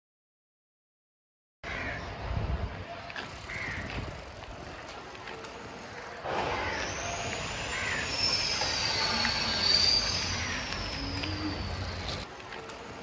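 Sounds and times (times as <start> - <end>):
bicycle tyres on rough concrete: 2.5 - 13.0
bicycle clicking and rattling: 3.1 - 6.3, 10.4 - 13.0
high whine: 6.2 - 12.2.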